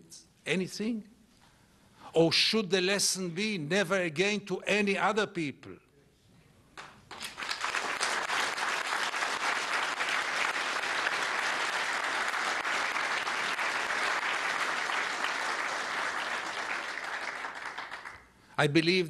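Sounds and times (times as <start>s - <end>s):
audience applauding: 6.8s - 18.3s.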